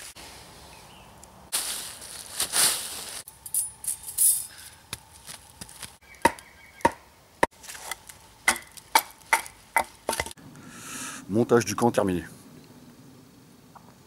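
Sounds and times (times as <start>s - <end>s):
rushing rustling noise: 0.0s - 0.6s, 1.5s - 3.3s.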